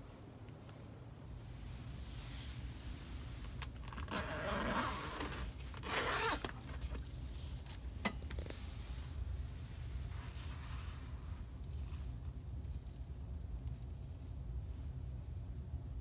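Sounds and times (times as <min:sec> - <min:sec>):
zipper pull clicks: 0:03.6 - 0:06.7
zipper pulled open: 0:03.6 - 0:07.0.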